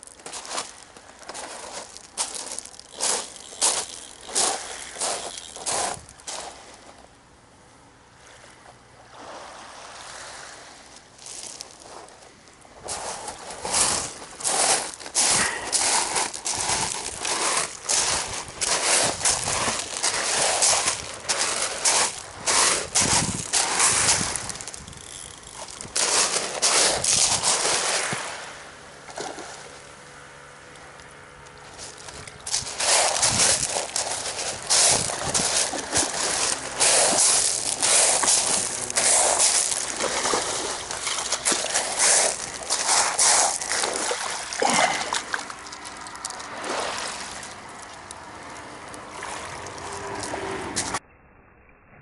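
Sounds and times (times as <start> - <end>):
seawater washing over shingle: 0.0 - 6.9, 12.8 - 29.9, 31.7 - 51.0
footsteps crunching on pebbles: 0.0 - 7.0, 11.1 - 28.3, 31.5 - 48.2.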